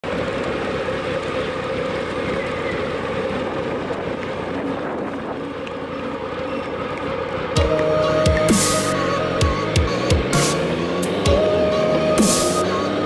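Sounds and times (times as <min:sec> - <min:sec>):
motorcycle engine running: 0:00.0 - 0:13.0
wind on microphone: 0:03.4 - 0:05.7.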